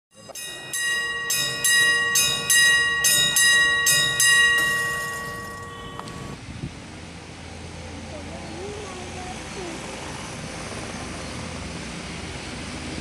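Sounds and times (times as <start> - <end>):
bell ringing: 0.1 - 6.4.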